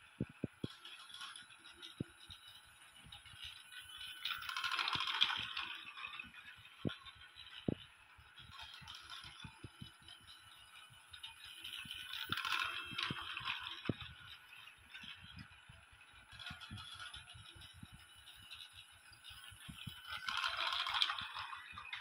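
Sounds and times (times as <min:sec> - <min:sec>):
toy train rattling on track: 0:00.0 - 0:22.0
clicks over rail joints: 0:00.2 - 0:22.0.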